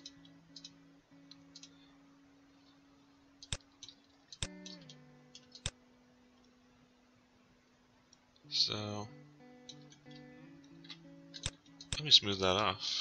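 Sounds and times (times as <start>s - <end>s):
mouse and keyboard clicks: 0.0s - 1.8s, 3.4s - 5.8s, 9.7s - 12.1s.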